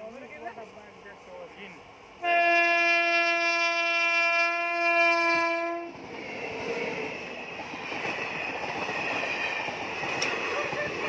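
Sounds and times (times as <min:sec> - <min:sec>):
train rumbling on rails: 0:00.0 - 0:11.0
locomotive horn blast: 0:02.2 - 0:05.9.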